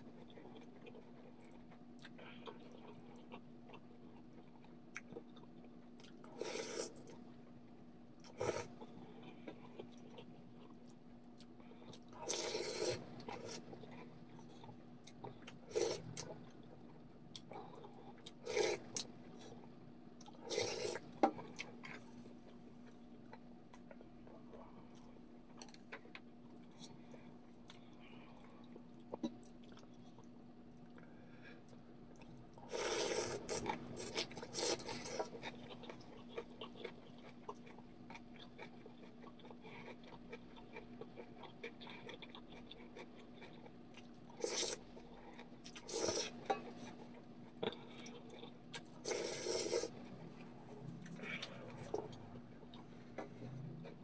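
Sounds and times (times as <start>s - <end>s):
quiet chewing: 0.0s - 54.0s
person slurping noodles: 12.2s - 13.6s, 18.4s - 18.8s, 20.5s - 21.0s, 32.7s - 35.2s, 45.8s - 46.4s, 49.0s - 50.0s.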